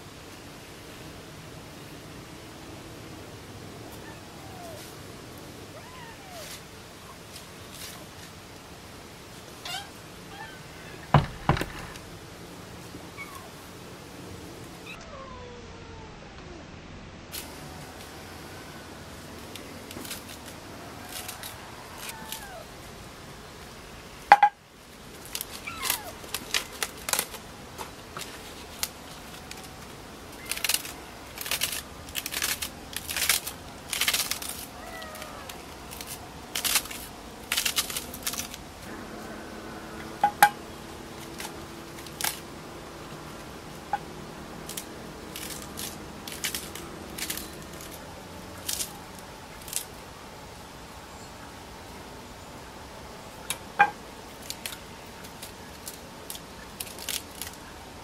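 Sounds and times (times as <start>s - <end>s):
lettuce leaves tearing and snapping: 19.4s - 22.6s, 25.2s - 38.7s, 41.2s - 42.4s, 44.6s - 50.0s, 54.3s - 57.7s.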